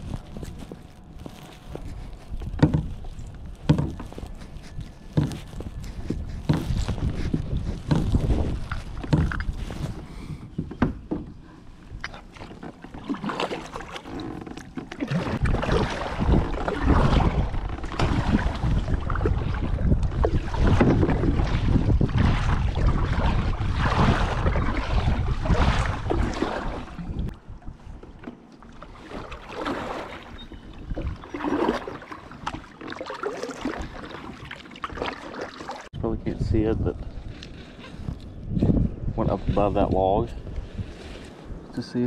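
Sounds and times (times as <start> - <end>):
wind on microphone: 0.0 - 12.4, 15.0 - 28.0, 30.0 - 32.6, 35.9 - 42.0
paddle knocks and splashes: 1.9 - 27.4, 28.0 - 36.0.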